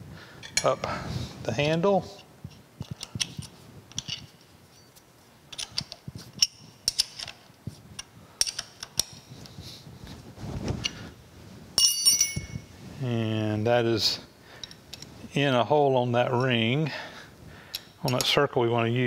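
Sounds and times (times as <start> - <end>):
light metal clicks and clinks: 11.8 - 12.6.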